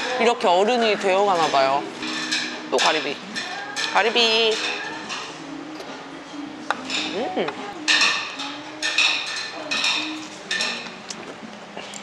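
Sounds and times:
ceramic dishes clattering: 1.2s - 5.4s, 6.7s - 10.9s.

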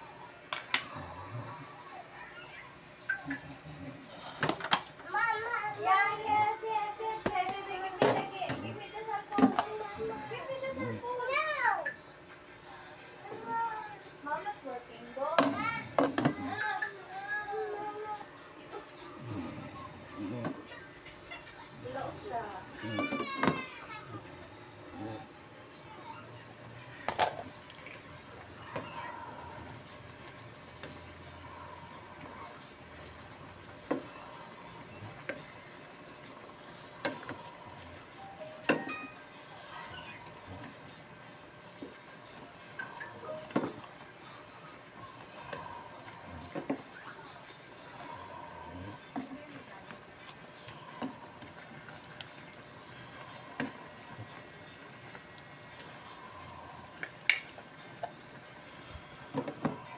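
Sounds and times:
low cooking hiss: 0.0s - 59.9s
vegetables simmering in a pot: 25.0s - 59.9s.

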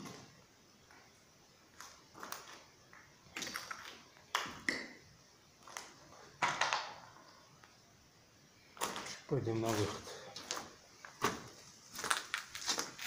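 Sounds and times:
footsteps on gritty concrete: 8.8s - 13.0s.

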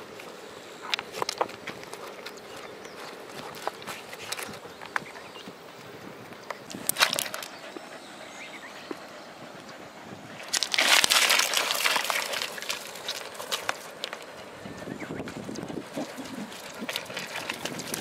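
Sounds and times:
stones clicking and crunching: 0.8s - 5.1s, 6.5s - 7.6s, 10.4s - 14.4s, 15.3s - 18.0s
rough crunching rush: 10.4s - 14.6s, 15.2s - 18.0s.

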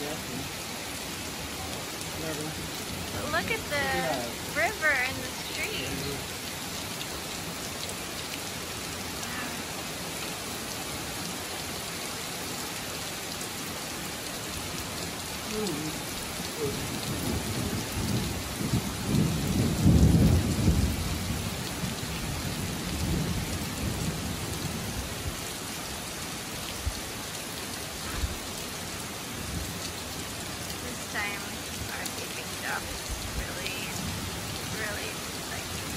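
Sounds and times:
heavy rain on pavement and vehicles: 0.0s - 35.9s
thunder rumble: 16.6s - 24.8s.

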